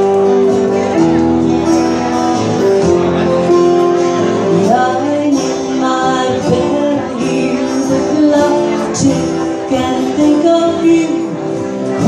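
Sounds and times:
live band playing: 0:00.0 - 0:12.0
woman singing: 0:04.5 - 0:12.0.

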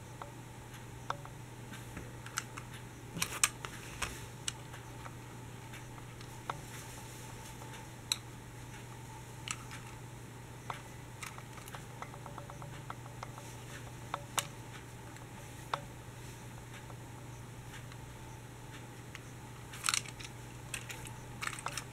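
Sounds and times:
steady low hum: 0:00.0 - 0:21.9
toy bus clicking in hands: 0:19.8 - 0:21.9.

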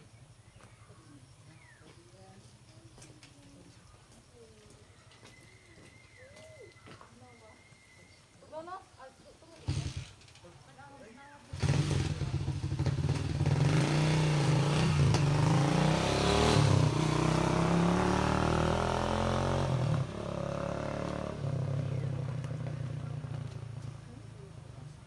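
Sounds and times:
engine running loud: 0:11.6 - 0:23.0.

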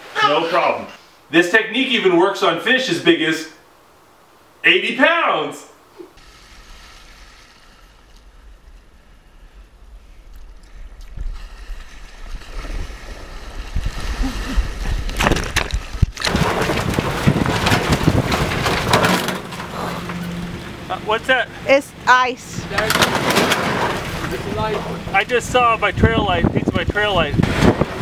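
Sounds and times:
wind buffeting microphone: 0:08.2 - 0:19.2, 0:22.6 - 0:28.0
surf rushing around kayak: 0:11.2 - 0:19.1, 0:19.8 - 0:28.0.

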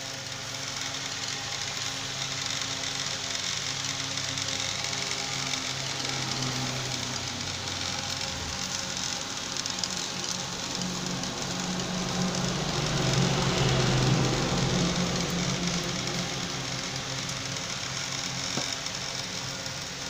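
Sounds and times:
fish sizzling on grill: 0:00.0 - 0:20.0
highway traffic hum: 0:04.7 - 0:19.8.

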